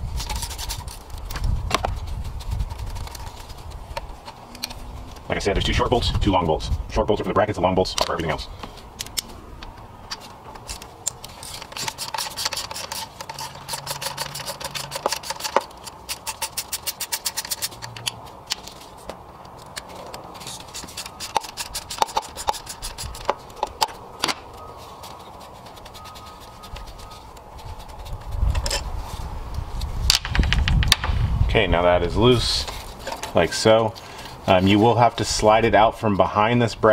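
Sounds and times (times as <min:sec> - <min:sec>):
tool tapping and scraping metal: 0:07.9 - 0:28.9, 0:32.6 - 0:34.0
hand ratchet clicking: 0:10.7 - 0:18.2.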